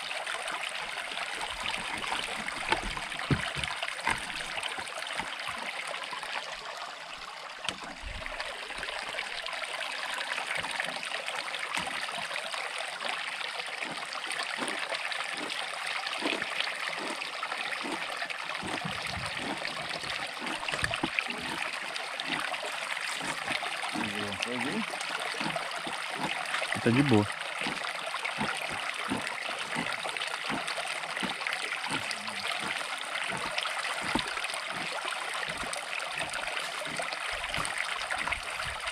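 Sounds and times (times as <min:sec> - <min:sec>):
flowing river rushing: 0:17.8 - 0:38.9.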